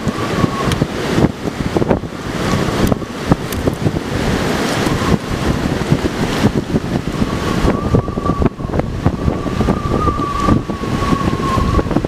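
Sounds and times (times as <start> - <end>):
wind buffeting microphone: 0.0 - 12.0
sharp clicks and crackles: 2.5 - 3.8.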